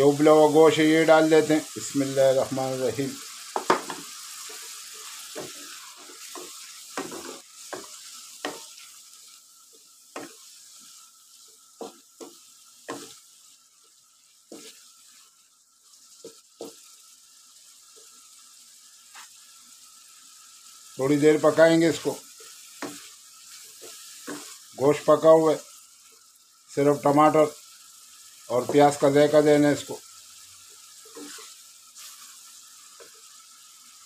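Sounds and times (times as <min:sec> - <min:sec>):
soft sizzle: 0:00.0 - 0:34.0
wooden spatula scraping wok: 0:03.1 - 0:13.3, 0:14.5 - 0:15.2, 0:21.6 - 0:24.7, 0:31.0 - 0:32.4.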